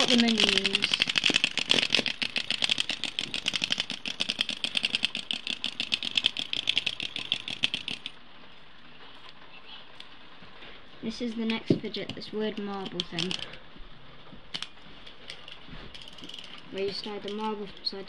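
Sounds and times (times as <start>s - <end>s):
fidget spinner clicking: 0.0s - 8.2s, 11.2s - 13.6s, 14.5s - 18.0s.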